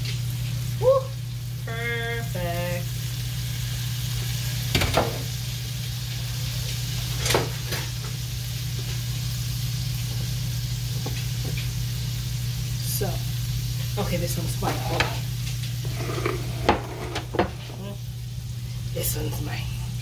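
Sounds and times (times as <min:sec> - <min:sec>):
food sizzling in a frying pan: 0:00.0 - 0:20.0
steady low hum: 0:12.1 - 0:20.0.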